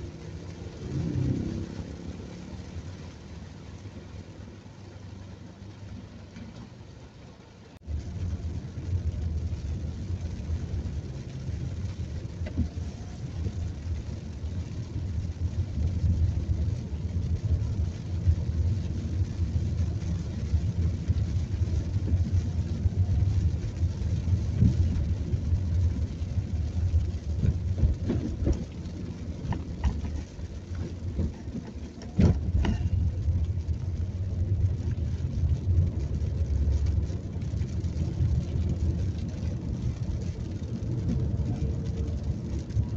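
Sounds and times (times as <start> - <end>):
engine and tyres on wet road: 0.0 - 42.9.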